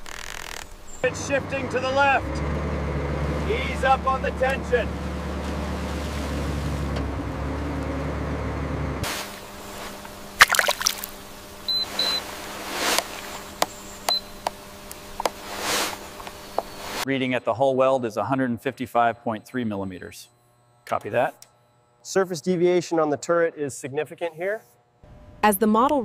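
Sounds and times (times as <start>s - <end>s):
low engine drone: 0.7s - 17.0s
water sloshing and splashing: 4.9s - 7.1s, 10.4s - 11.2s.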